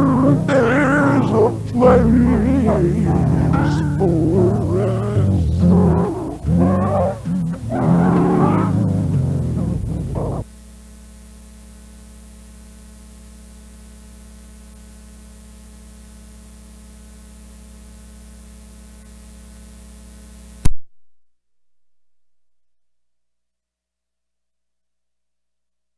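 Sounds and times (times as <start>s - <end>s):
song: 0.0s - 10.4s
cassette tape hiss: 0.0s - 20.7s
low steady hum: 0.0s - 20.8s.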